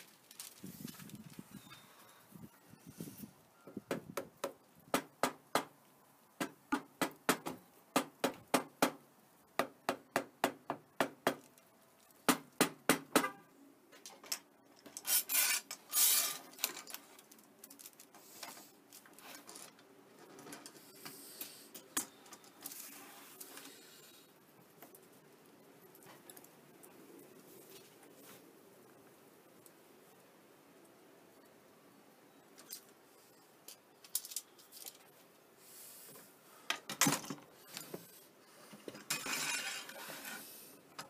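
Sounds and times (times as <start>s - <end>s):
scraping and rustling: 0.0s - 1.7s, 14.8s - 21.6s, 37.6s - 40.7s.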